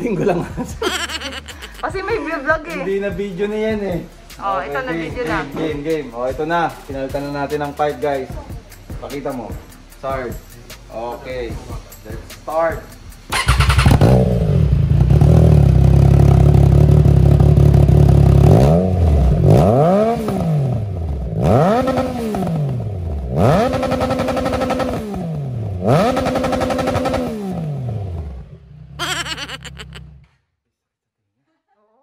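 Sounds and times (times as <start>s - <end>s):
motorcycle engine revving: 13.3s - 20.8s, 21.4s - 28.2s.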